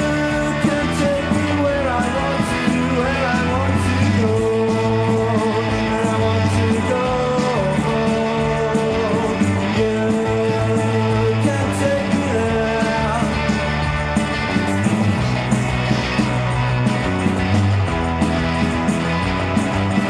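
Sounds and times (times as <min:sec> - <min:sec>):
person singing: 0:00.0 - 0:13.9
bass guitar: 0:00.0 - 0:20.0
drums: 0:00.0 - 0:20.0
electric guitar: 0:00.0 - 0:20.0.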